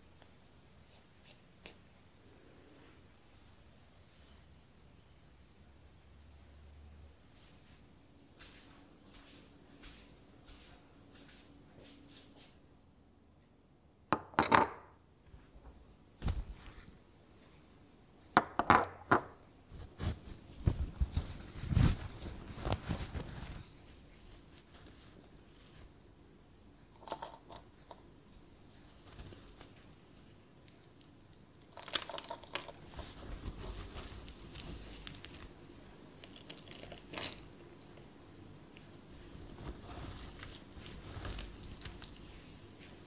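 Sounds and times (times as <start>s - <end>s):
glass bottle and jars clinking: 14.2s - 15.0s, 27.0s - 28.0s, 31.6s - 32.9s, 36.5s - 38.0s
wax pieces rattling in glass jar: 31.6s - 33.0s, 36.2s - 38.0s.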